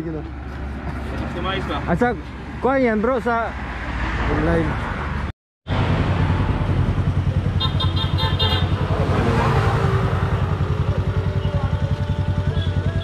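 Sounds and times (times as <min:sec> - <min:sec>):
motorcycle engine running: 0:06.1 - 0:13.0.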